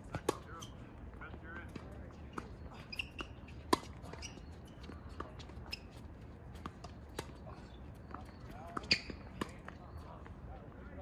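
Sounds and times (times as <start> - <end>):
sneakers squeaking on court: 0.1 - 10.2
racket hitting tennis ball: 2.4 - 4.3.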